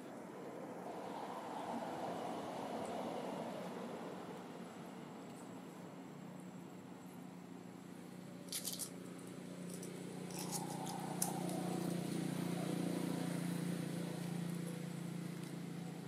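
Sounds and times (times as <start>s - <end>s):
dry leaves crackling: 8.2s - 15.7s.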